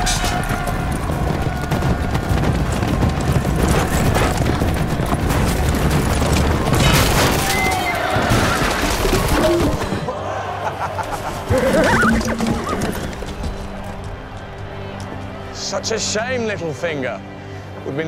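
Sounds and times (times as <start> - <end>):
horses galloping: 0.0 - 10.1, 10.9 - 15.3
dramatic film music: 0.0 - 18.0
horse whinnying: 11.4 - 13.2.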